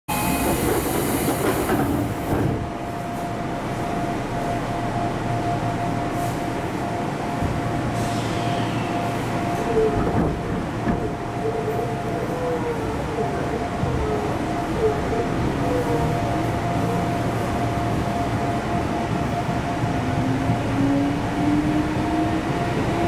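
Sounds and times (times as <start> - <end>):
train car steady hum: 0.1 - 23.0.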